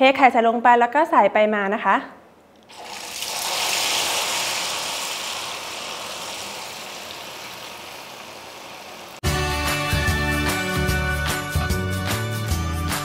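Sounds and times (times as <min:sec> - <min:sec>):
oil sizzling in a wok: 0:02.7 - 0:09.2.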